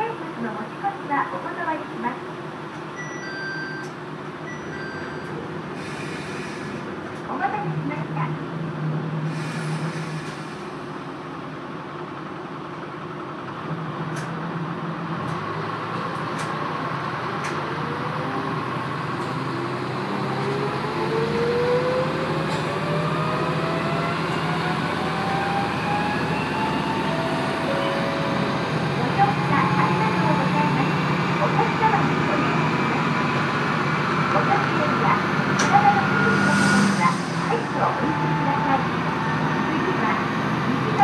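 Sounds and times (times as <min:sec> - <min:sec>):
railcar engine hum: 0:00.0 - 0:41.0
rising whine: 0:19.9 - 0:31.2.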